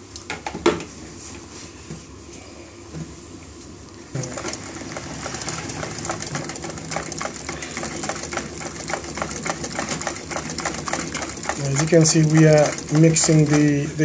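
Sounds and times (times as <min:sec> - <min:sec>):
electric whisk whirring: 0:04.2 - 0:14.0.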